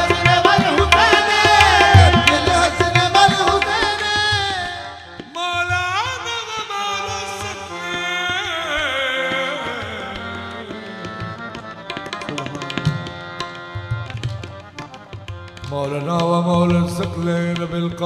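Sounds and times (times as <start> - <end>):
tabla strokes: 0.0 - 6.1, 10.2 - 18.0
harmonium: 0.0 - 18.0.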